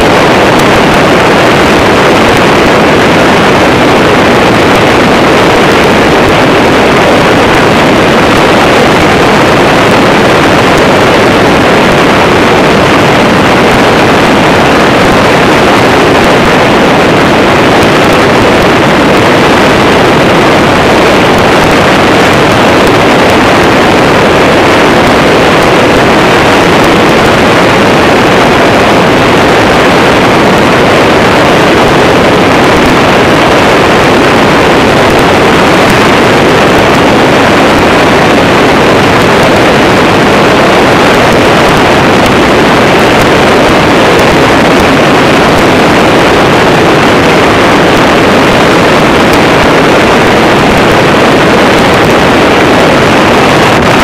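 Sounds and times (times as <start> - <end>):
engine and propeller running: 0.0 - 54.0
wind rushing over microphone: 0.0 - 54.0.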